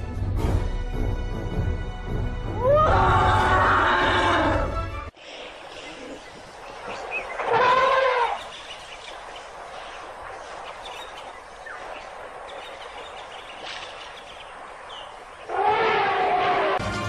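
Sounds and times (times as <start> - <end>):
faint crackles: 5.2 - 16.8
elephant trumpeting: 7.4 - 8.5, 15.5 - 16.8.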